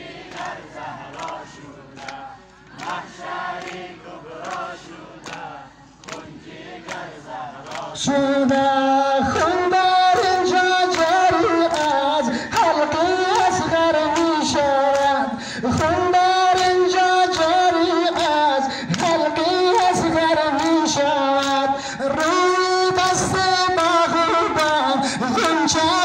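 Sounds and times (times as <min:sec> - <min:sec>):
crowd chanting: 0:00.0 - 0:14.8
person singing a lament: 0:08.0 - 0:26.0.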